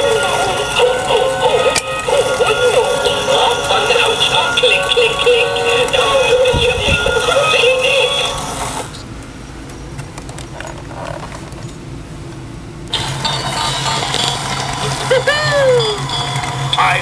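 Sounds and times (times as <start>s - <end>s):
toy electronic music: 0.0s - 8.8s, 13.0s - 17.0s
toy motor and gears whirring: 13.0s - 16.6s.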